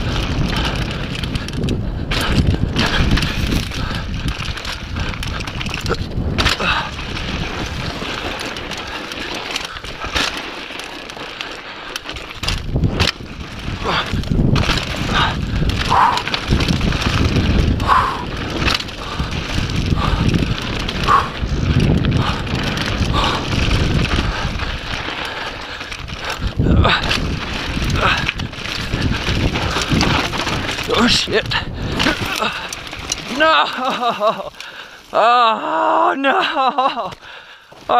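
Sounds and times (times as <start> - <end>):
wind buffeting microphone: 0.0 - 10.5, 12.0 - 35.2
bike rattling over bumps: 0.0 - 37.9
bike tyres on rough ground: 0.0 - 37.9.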